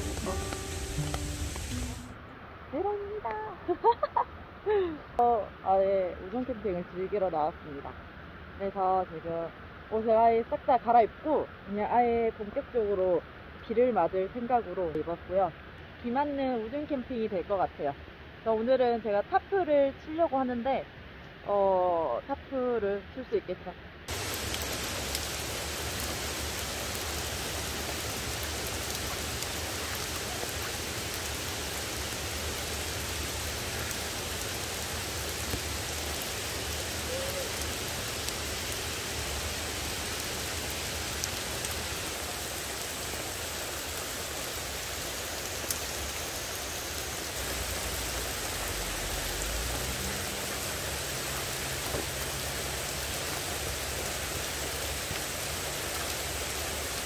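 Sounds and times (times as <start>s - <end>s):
heavy rain on pavement: 0.0s - 2.2s, 24.1s - 57.0s.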